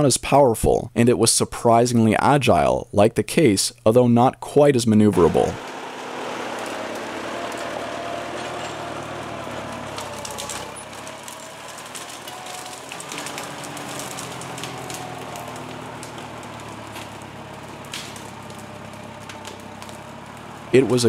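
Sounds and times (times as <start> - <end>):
tractor engine running: 5.0 - 21.0
twigs and branches snapping: 5.6 - 21.0.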